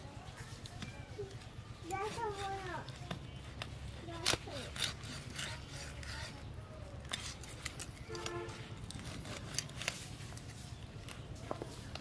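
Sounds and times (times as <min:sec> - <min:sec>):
fish scales being scraped: 0:04.1 - 0:10.5.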